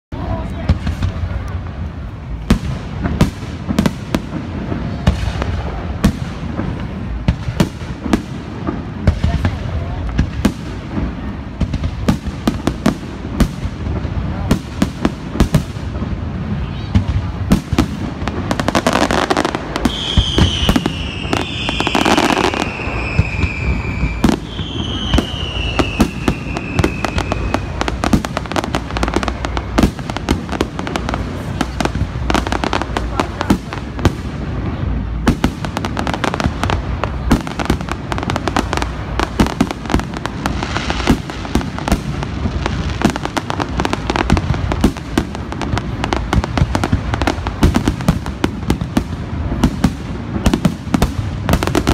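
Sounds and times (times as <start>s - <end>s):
fireworks crackling: 0.1s - 51.9s
falling firework whistles: 18.5s - 30.2s.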